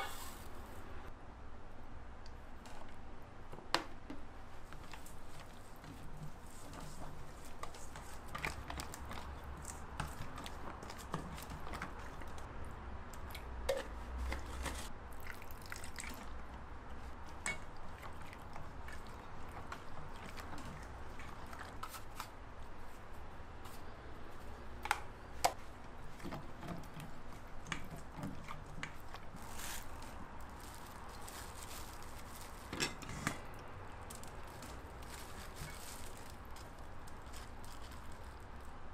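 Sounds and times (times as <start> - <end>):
wooden spoon stirring thick paste: 4.6 - 12.5, 16.0 - 32.5.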